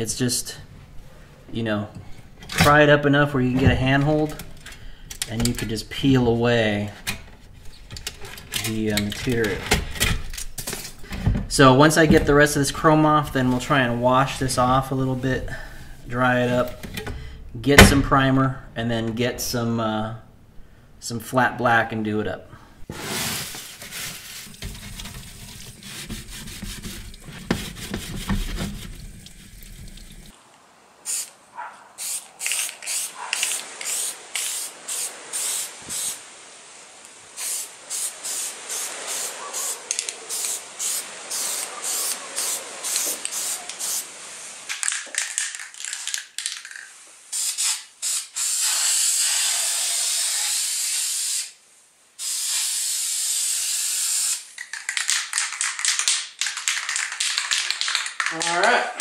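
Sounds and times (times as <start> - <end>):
tap water running: 24.0 - 30.4
aerosol spray can spraying: 31.1 - 31.3, 32.0 - 36.2, 37.4 - 44.1, 44.8 - 51.6, 52.2 - 58.1.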